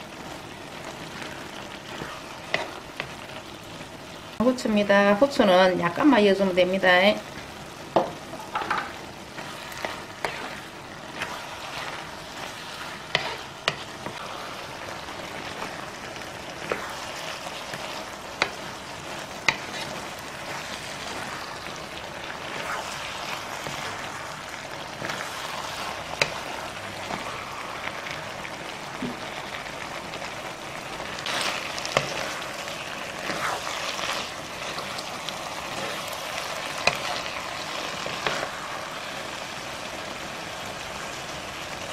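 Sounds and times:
food sizzling in a frying pan: 0:00.0 - 0:41.9.

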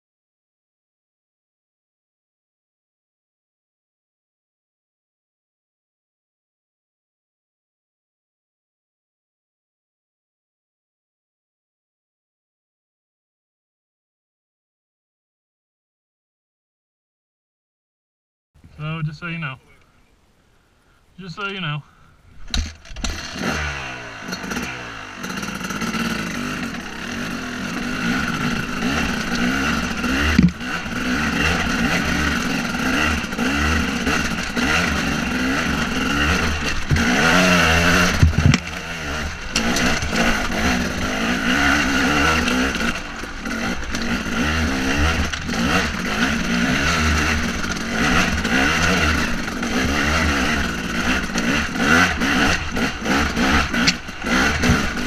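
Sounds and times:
dirt bike engine revving: 0:22.4 - 0:55.0
bike knocking on rocks: 0:28.8 - 0:30.8, 0:36.2 - 0:38.8.

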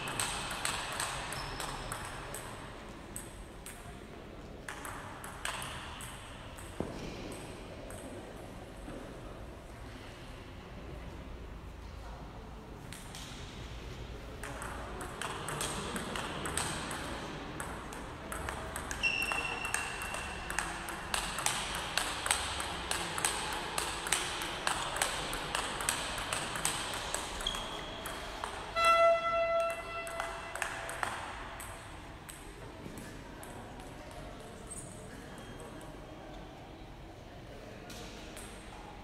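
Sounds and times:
table tennis ball clicking: 0:00.0 - 0:03.8, 0:04.7 - 0:06.8, 0:14.4 - 0:32.5
shoe squeak: 0:01.4 - 0:01.9, 0:19.0 - 0:20.4.

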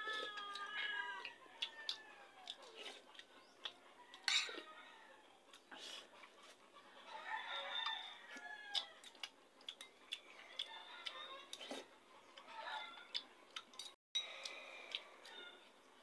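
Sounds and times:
rooster crowing: 0:00.0 - 0:02.6, 0:07.0 - 0:09.1, 0:12.5 - 0:13.2
chewing noodles: 0:00.0 - 0:04.6, 0:07.5 - 0:16.0
chickens clucking: 0:00.0 - 0:08.0.

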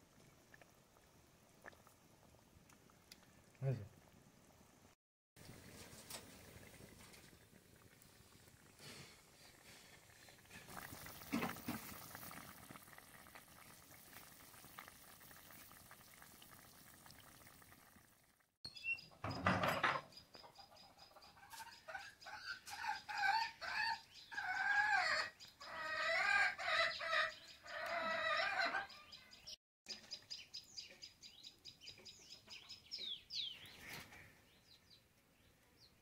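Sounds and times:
curry bubbling: 0:00.0 - 0:18.5
chickens clucking: 0:20.3 - 0:23.6.

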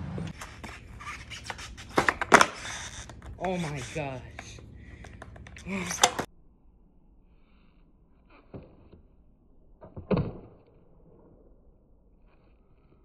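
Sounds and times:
skateboard knocking on concrete: 0:00.3 - 0:06.3.

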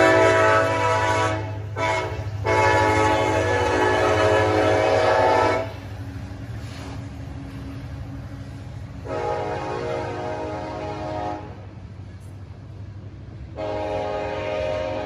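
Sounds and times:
locomotive air horn blasts: 0:00.0 - 0:05.8, 0:09.0 - 0:11.7, 0:13.5 - 0:15.0
train rumbling by: 0:00.0 - 0:15.0.

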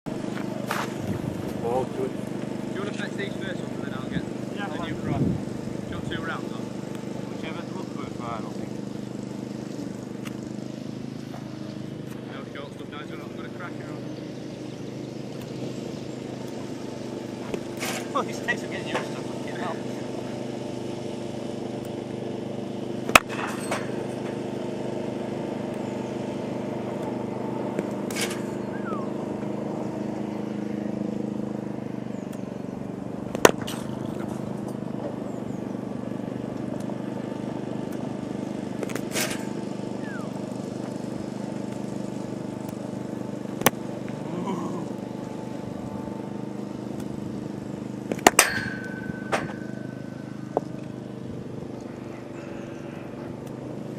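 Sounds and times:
steady motor hum: 0:00.0 - 0:53.9
cricket bat striking ball: 0:23.0 - 0:24.0, 0:33.3 - 0:33.9, 0:43.5 - 0:43.8, 0:48.1 - 0:50.0.

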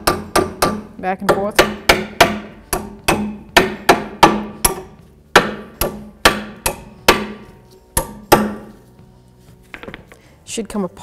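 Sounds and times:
hammer striking metal: 0:00.0 - 0:08.8.

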